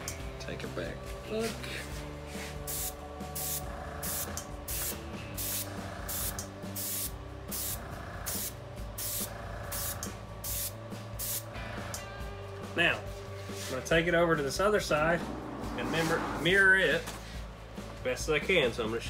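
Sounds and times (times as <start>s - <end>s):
airbrush spraying hissing bursts: 2.5s - 11.5s.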